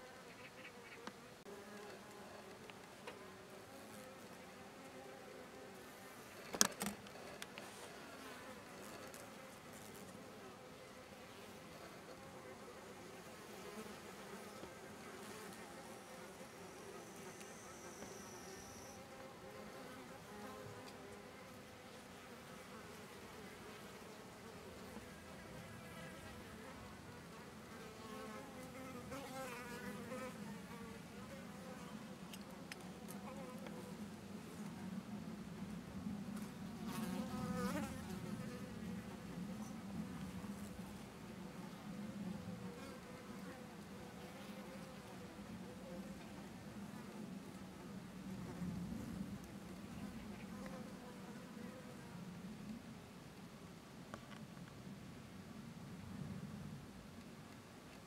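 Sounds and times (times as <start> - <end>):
insect wings buzzing: 16.0 - 19.0.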